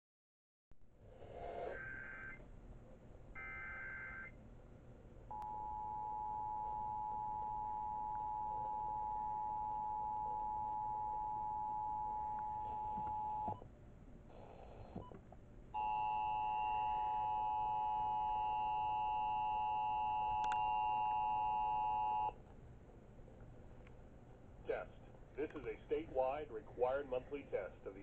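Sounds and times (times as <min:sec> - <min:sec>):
radio crackle: 0:24.7 - 0:28.0.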